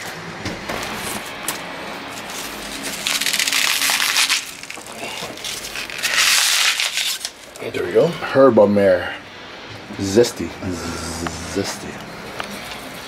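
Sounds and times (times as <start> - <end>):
asparagus crunching and snapping: 1.0 - 7.7.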